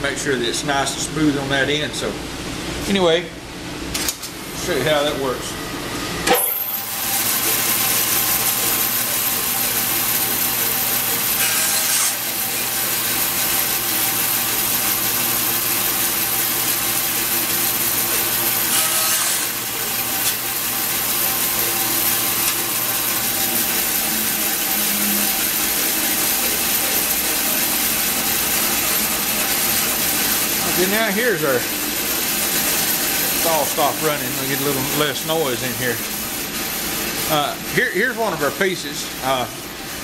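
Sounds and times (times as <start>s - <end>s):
shop machine noise: 0.0s - 40.0s
bandsaw cutting wood: 6.4s - 36.2s.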